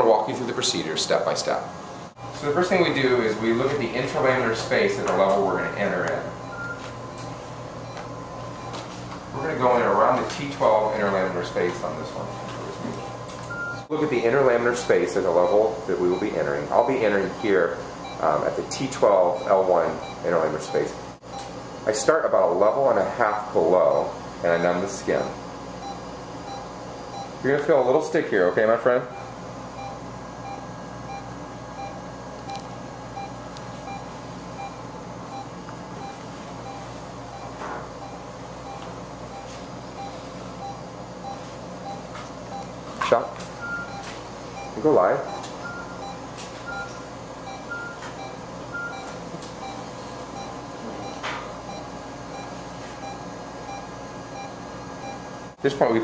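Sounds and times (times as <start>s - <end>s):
low room hum: 0.0s - 56.0s
patient monitor beeping: 2.2s - 55.5s
short electronic beeps: 43.6s - 49.8s.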